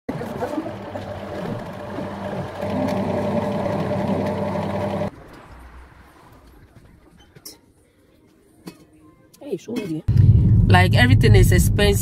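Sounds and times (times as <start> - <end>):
electric sewing machine running: 0.2 - 5.1.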